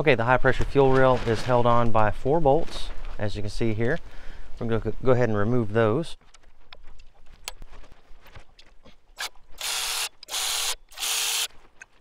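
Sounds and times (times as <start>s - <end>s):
electric ratchet motor whirring: 9.2s - 11.5s.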